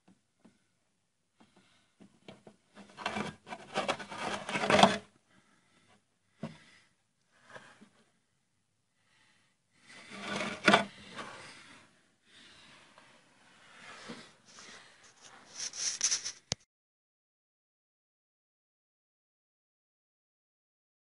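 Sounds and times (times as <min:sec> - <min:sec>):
hissy scrape: 0:13.7 - 0:16.6
hands rubbing car bodywork: 0:15.1 - 0:16.6.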